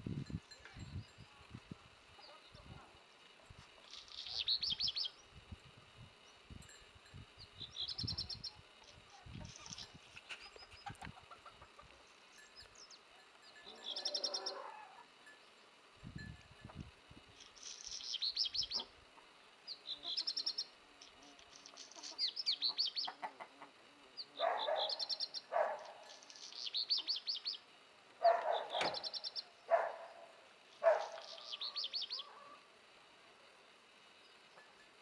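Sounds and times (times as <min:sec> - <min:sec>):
songbird trilling: 0:03.9 - 0:05.3, 0:07.4 - 0:08.6, 0:12.2 - 0:14.7, 0:17.4 - 0:18.9, 0:19.7 - 0:20.8, 0:21.6 - 0:23.2, 0:24.2 - 0:29.6, 0:30.8 - 0:32.6
harsh bird calls: 0:13.7 - 0:14.9, 0:24.2 - 0:25.8, 0:28.2 - 0:30.0, 0:30.8 - 0:32.6.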